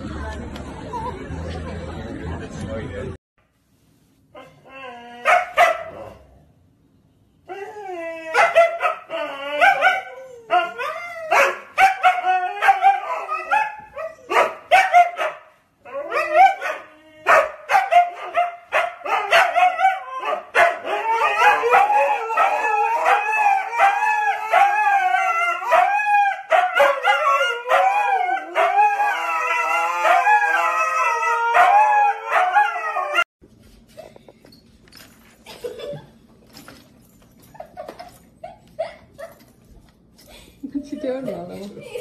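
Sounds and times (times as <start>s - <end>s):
dogs barking: 5.2s - 6.3s, 8.3s - 30.6s, 31.4s - 33.2s
dogs howling: 7.5s - 15.2s, 15.8s - 33.3s.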